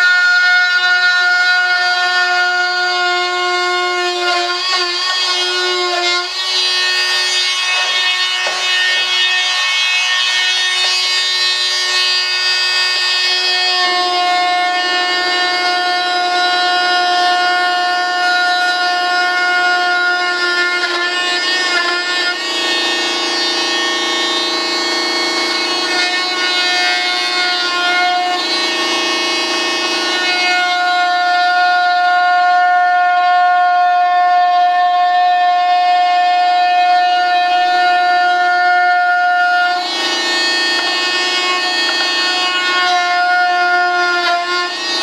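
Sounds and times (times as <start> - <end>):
rotary tool cutting disc whine: 4.0 - 30.8, 39.3 - 45.0.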